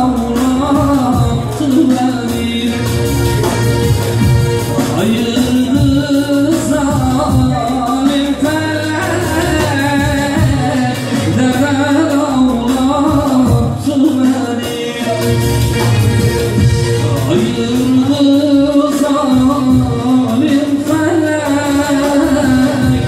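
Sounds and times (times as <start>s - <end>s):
electronic keyboard accompaniment: 0.0s - 23.0s
man singing through microphone: 0.0s - 23.0s.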